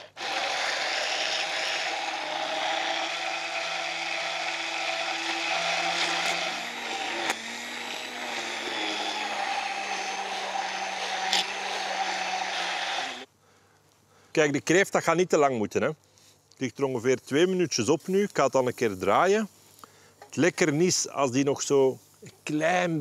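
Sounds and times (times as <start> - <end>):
immersion blender running: 0.0 - 13.3.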